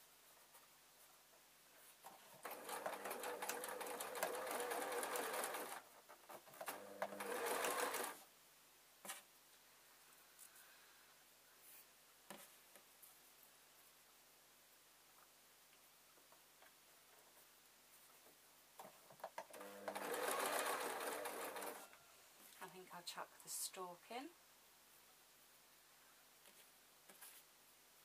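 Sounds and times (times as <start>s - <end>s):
sewing machine stitching: 2.3s - 8.2s, 19.4s - 21.9s.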